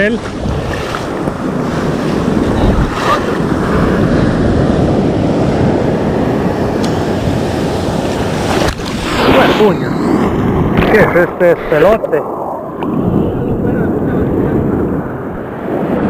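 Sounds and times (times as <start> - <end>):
surf breaking and foaming: 0.0 - 16.0
wind buffeting microphone: 0.0 - 16.0.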